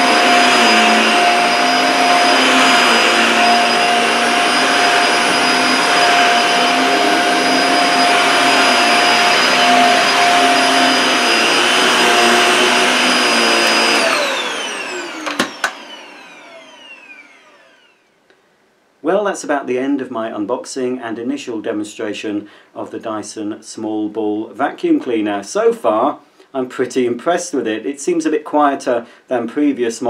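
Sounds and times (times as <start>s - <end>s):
vacuum cleaner running on carpet: 0.0s - 17.9s
vacuum motor winding down: 0.0s - 18.1s.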